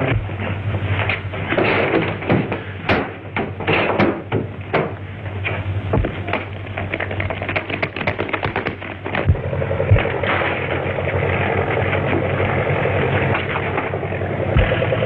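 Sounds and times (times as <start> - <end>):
heavy thumps: 0.0 - 7.0, 7.6 - 10.6, 13.4 - 15.0
airplane engine drone: 0.0 - 15.0
running footsteps on stairs: 5.9 - 6.4.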